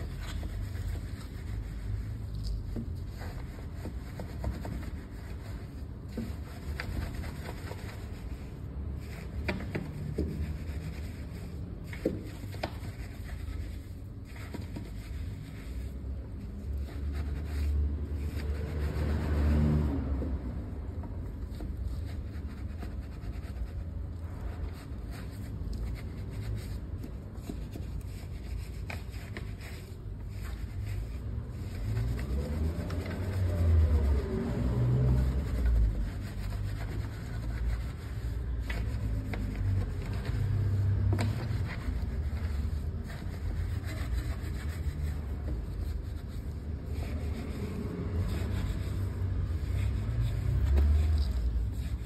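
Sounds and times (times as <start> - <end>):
brush scrubbing wet wheel: 0.0 - 52.0.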